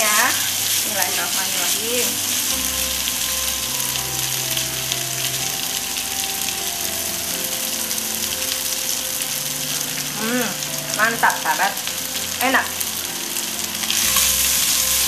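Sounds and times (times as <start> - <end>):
spatula scraping wok: 0.0 - 5.3, 13.7 - 15.0
chicken sizzling in a wok: 0.0 - 15.0
soft background music: 0.0 - 15.0.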